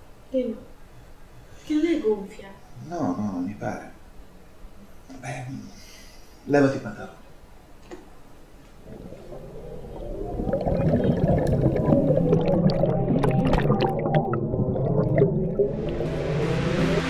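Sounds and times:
low hum: 8.6s - 17.0s
underwater gurgling and bubbling: 8.8s - 17.0s.

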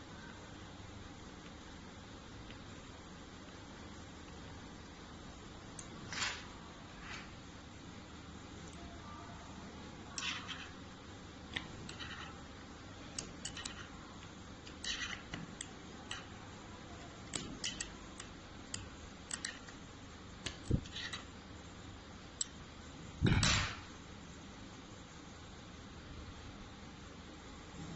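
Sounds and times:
metal pick clicking and scraping: 10.1s - 10.8s, 11.5s - 12.4s, 13.1s - 16.4s, 17.2s - 19.8s, 20.4s - 21.3s.

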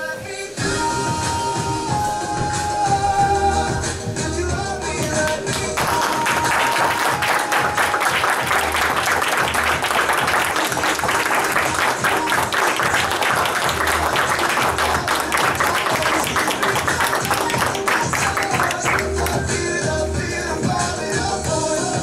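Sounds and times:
music playing: 0.0s - 22.0s
audience clapping: 5.0s - 19.7s.

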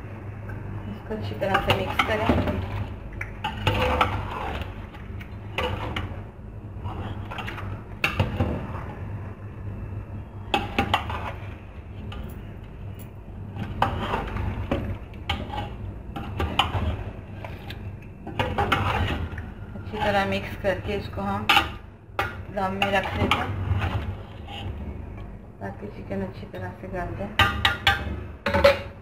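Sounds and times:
steady low hum: 0.0s - 29.0s
spoon scraping a steel pot: 18.4s - 21.8s.

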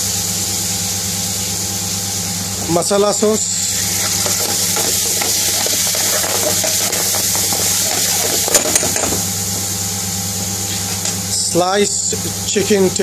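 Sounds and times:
sauce sizzling in a frying pan: 0.0s - 10.1s
metal ladle scraping a pan: 3.7s - 9.2s
ladle clinking on pan: 3.9s - 9.2s.

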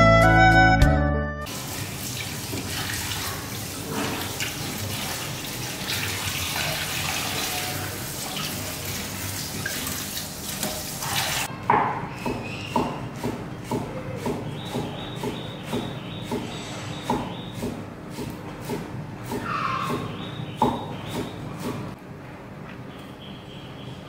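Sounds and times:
tap water running into sink: 1.5s - 11.5s.

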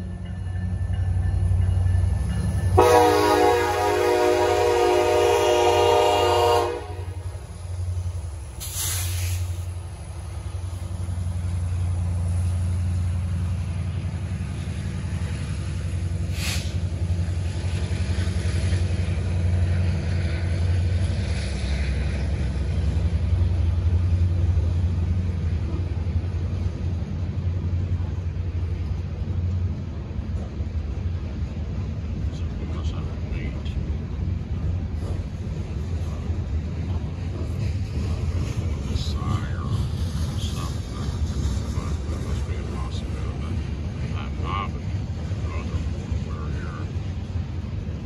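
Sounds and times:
train wheels rumbling on rail: 0.0s - 48.0s
locomotive horn: 2.8s - 7.4s
brief hisses: 8.6s - 9.7s, 16.3s - 16.9s.

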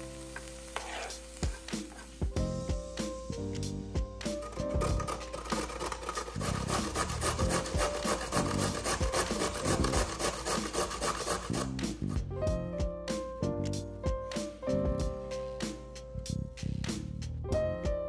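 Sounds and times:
carrot rasping on a grater: 4.3s - 12.2s.

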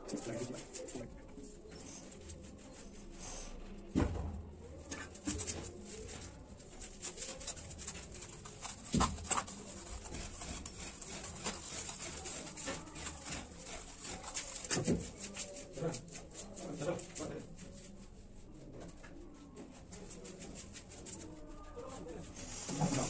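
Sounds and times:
trowel scraping mortar: 7.1s - 16.4s.

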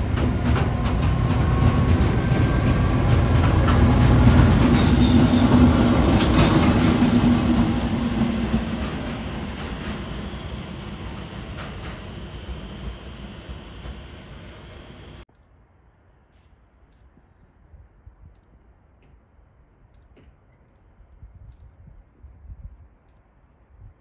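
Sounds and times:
wheels clicking over rail joints: 0.0s - 14.2s
diesel locomotive drone: 0.0s - 15.2s.

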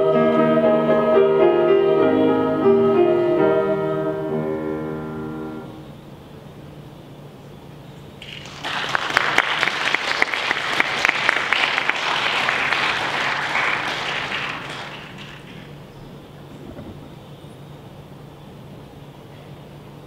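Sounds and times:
audience applauding: 8.2s - 15.8s.

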